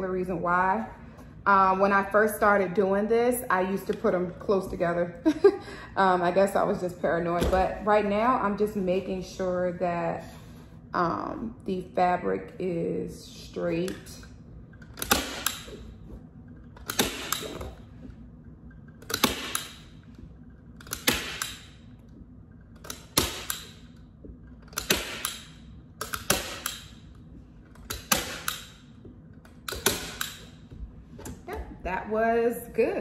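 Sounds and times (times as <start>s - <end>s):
staple gun snapping: 14.8s - 15.8s, 16.8s - 17.7s, 19.0s - 19.9s, 20.8s - 21.8s, 22.8s - 23.9s, 24.6s - 27.0s, 27.8s - 28.8s, 29.6s - 30.6s.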